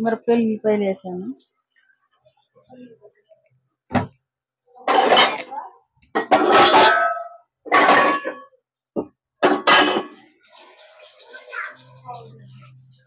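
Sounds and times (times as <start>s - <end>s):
metal utensils clanking and scraping: 4.9s - 8.6s, 9.4s - 10.2s.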